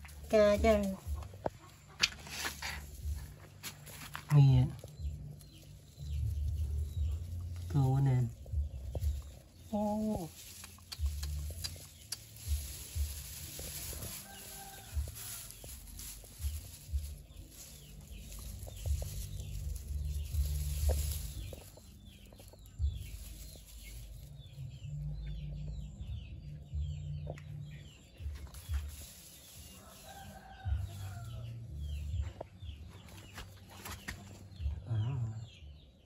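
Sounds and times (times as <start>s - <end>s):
straw rustling and crackling: 0.0s - 25.4s, 27.3s - 34.7s
chickens clucking: 0.7s - 3.9s.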